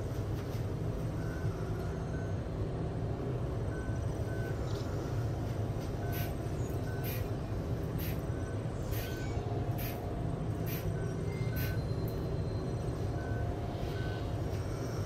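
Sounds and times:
spray bottle squirting: 9.8 - 10.0.

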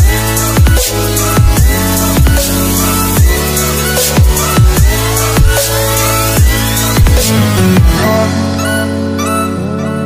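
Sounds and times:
deep kick drums: 0.0 - 2.6, 4.1 - 5.8, 6.4 - 8.0
electronic music: 0.0 - 10.0
rising synth tone: 1.4 - 10.0.

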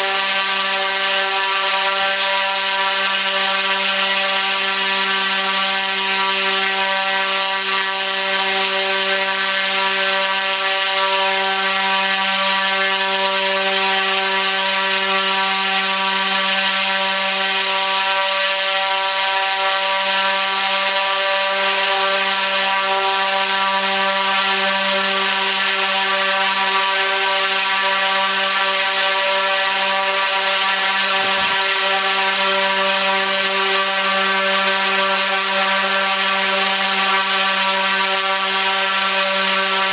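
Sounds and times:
propeller air rush: 0.0 - 39.9
electric motor humming: 18.6 - 39.9.

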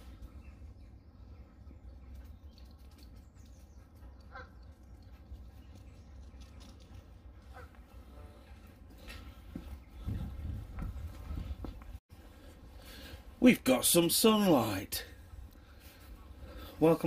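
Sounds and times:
wind rumbling on microphone: 8.6 - 12.0.

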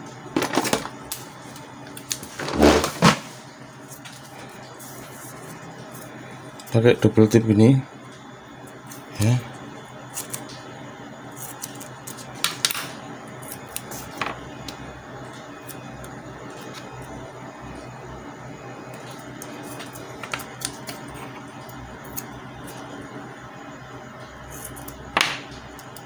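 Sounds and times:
steady low hum: 0.0 - 26.0
tape clicking and crinkling: 0.4 - 3.0.

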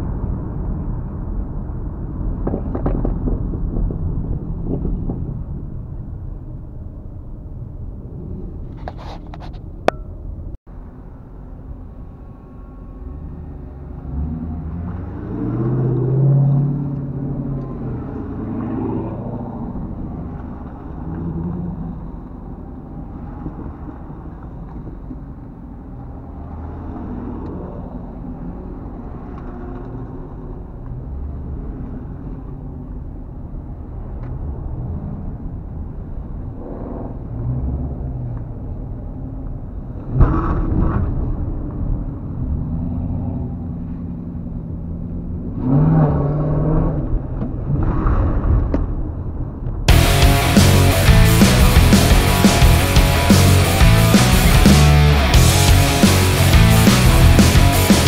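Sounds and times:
car engines idling: 49.9 - 58.0
engine revving loudly: 49.9 - 58.0.

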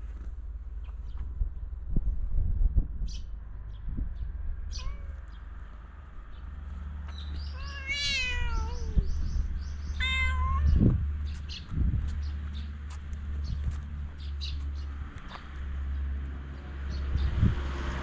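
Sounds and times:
cat meowing: 4.7 - 5.2, 7.4 - 9.2, 9.9 - 10.9.

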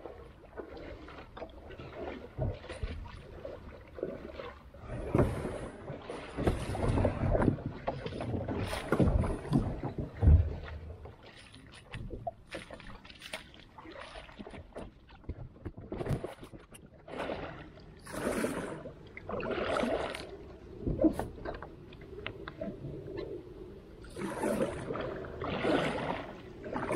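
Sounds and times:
water splashing in a creek: 0.0 - 23.0, 24.0 - 26.9
low rumbling thumps: 5.0 - 11.3.

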